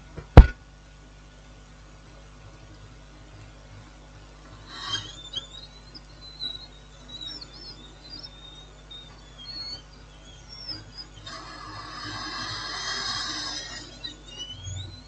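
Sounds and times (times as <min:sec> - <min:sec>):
faint high wavering chirps: 0:02.7 - 0:15.0
high-pitched whine: 0:02.8 - 0:15.0
scratchy noise: 0:04.4 - 0:15.0.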